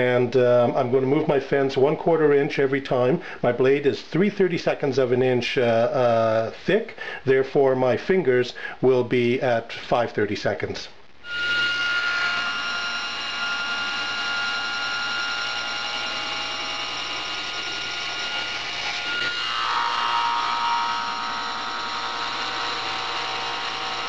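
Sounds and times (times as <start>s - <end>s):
table saw whining: 11.2s - 24.0s.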